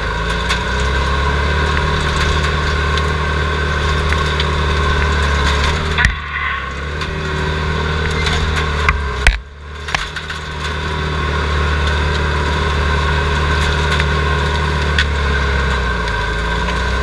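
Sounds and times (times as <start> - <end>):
loader engine running: 0.0 - 17.0
sharp knock: 6.0 - 6.8.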